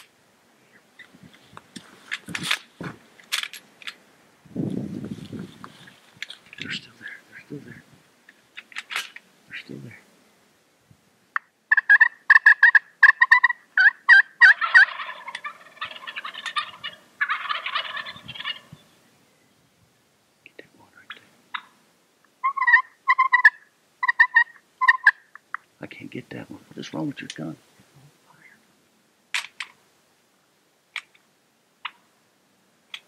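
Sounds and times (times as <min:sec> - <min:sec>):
turkeys gobbling: 0:11.4 - 0:18.8, 0:21.1 - 0:21.8, 0:22.4 - 0:25.7, 0:31.8 - 0:32.1.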